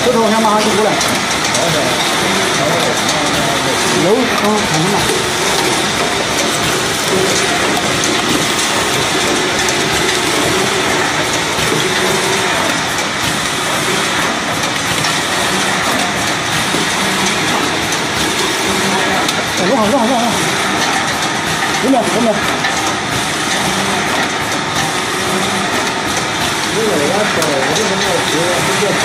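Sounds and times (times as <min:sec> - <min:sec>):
machine clattering: 0:00.0 - 0:29.0.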